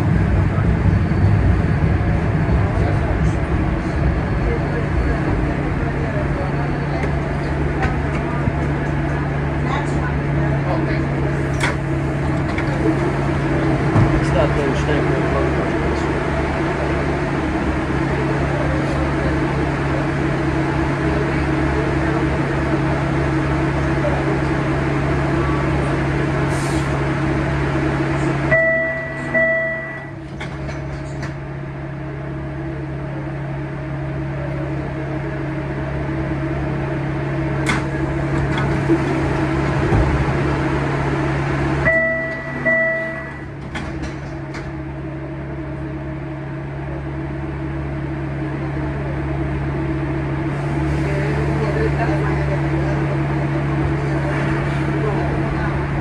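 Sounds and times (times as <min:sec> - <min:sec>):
low hum of subway platform: 0:00.0 - 0:56.0
electronic two-beep chime: 0:28.5 - 0:30.1, 0:41.9 - 0:43.4.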